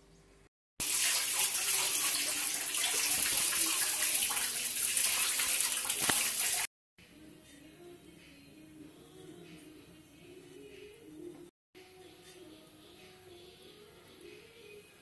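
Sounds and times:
water pouring into metal pot: 0.8 - 6.7.

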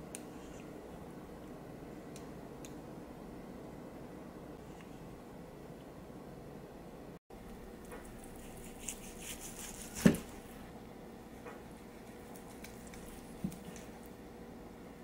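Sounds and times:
knife slicing meat: 8.4 - 10.3.

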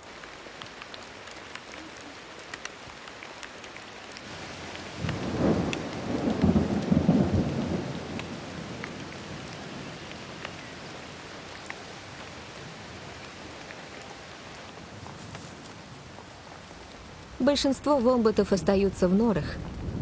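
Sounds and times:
heavy rain falling: 0.0 - 20.0
raindrops ticking: 0.0 - 20.0
thunder rumbling: 4.3 - 20.0.

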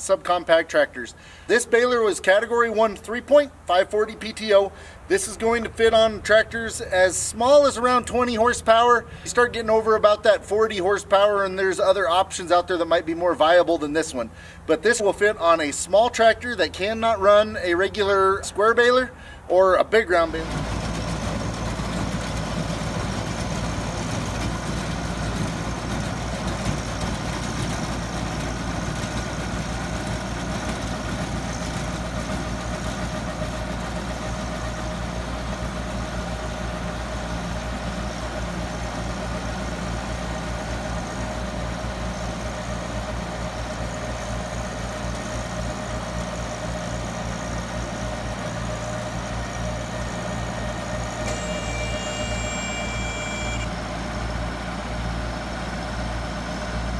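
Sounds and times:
tractor diesel engine running: 0.0 - 56.9
baler machine whine: 20.2 - 56.0.

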